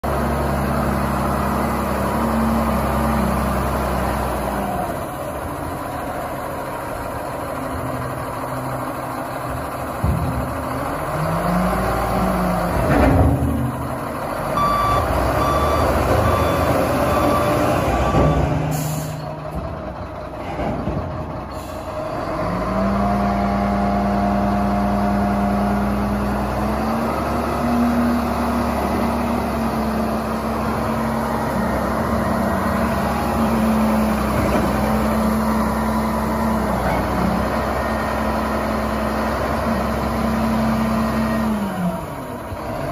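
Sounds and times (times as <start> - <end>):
wheel loader diesel engine: 0.0 - 42.9
reversing alarm beeping: 14.6 - 19.3.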